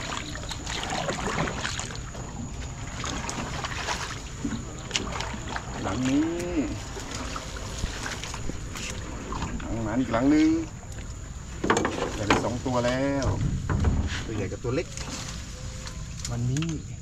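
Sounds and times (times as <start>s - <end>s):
paddle splashing water: 0.0s - 13.7s
reeds rustling against boat: 0.0s - 17.0s
knocks and drips: 10.9s - 12.5s.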